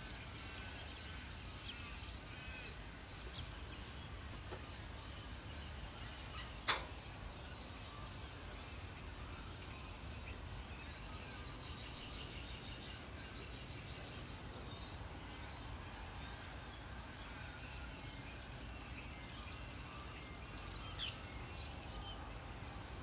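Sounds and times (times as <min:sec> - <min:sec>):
faint background noise: 0:00.0 - 0:23.0
soft high bird chirps: 0:04.8 - 0:13.9
sharp click: 0:06.6 - 0:07.0.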